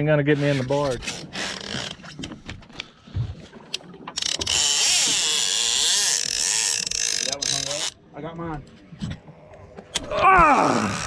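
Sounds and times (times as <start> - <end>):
fishing reel whirring: 4.2 - 8.0.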